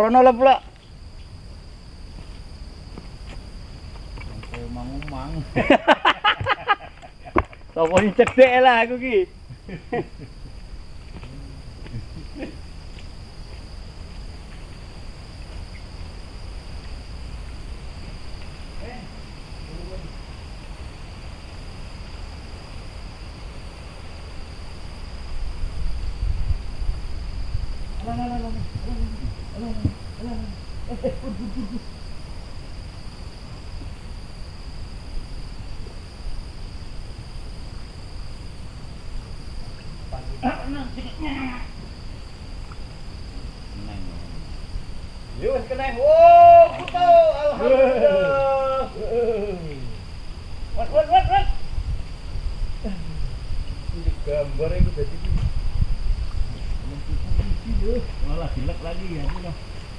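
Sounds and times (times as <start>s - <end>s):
insects droning: 0.0s - 59.9s
wind rumble on microphone: 21.8s - 40.4s, 49.7s - 59.9s.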